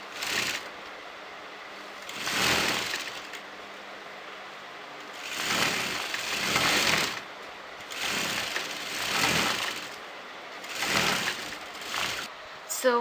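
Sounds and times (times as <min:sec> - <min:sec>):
electric sewing machine stitching: 0:00.0 - 0:00.7, 0:02.0 - 0:03.4, 0:05.1 - 0:10.0, 0:10.6 - 0:12.3.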